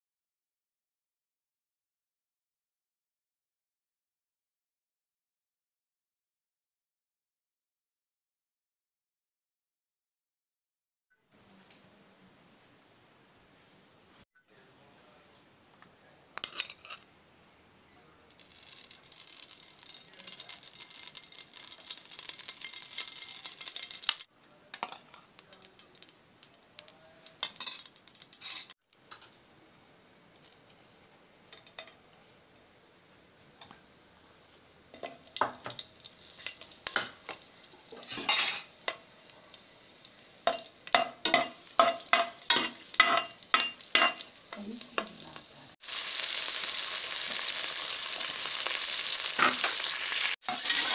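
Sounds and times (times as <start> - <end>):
metal spoon scraping a pot: 16.4 - 17.1, 38.0 - 39.0, 49.4 - 50.9
spices frying: 18.2 - 29.4, 30.0 - 50.9
oil sizzling in a pot: 18.3 - 29.2, 34.4 - 50.9.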